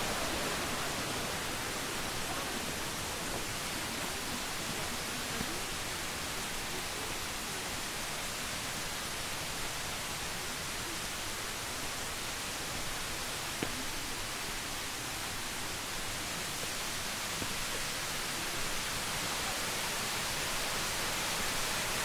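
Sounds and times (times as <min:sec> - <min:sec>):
forest ambience rushing hiss: 0:00.0 - 0:22.0.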